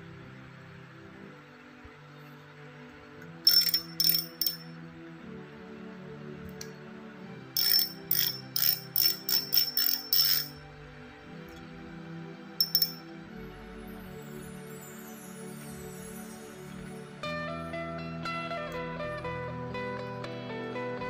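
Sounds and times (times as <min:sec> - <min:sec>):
soft background music: 0:00.0 - 0:21.0
fishing reel clicker clicking: 0:03.5 - 0:04.7, 0:07.6 - 0:10.6, 0:12.6 - 0:13.0.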